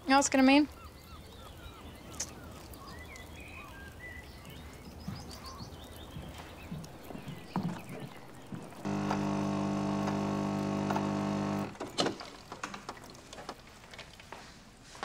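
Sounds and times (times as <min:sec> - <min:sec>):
coffee machine humming: 0:06.9 - 0:11.8.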